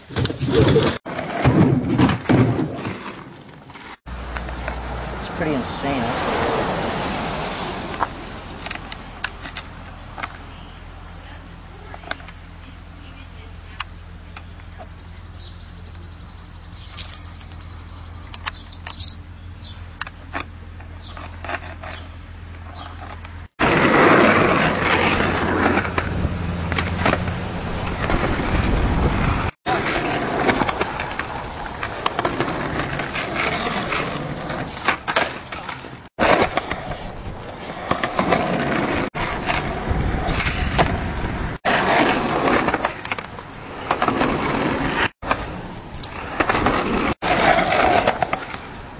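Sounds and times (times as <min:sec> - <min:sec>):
skateboard wheels rolling on concrete: 0:00.0 - 0:48.9
skateboard clacking on ground: 0:29.7 - 0:48.9.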